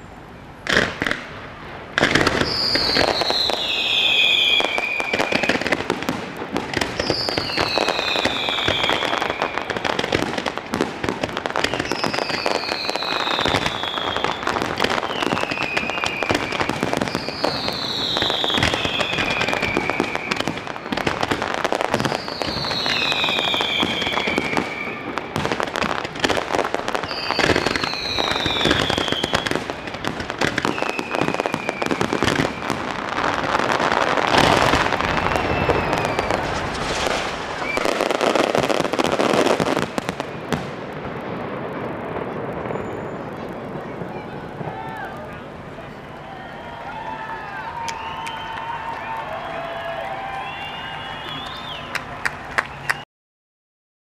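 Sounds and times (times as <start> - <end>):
fireworks crackling and popping: 0.0 - 53.0
whistle falling in pitch: 46.2 - 52.0.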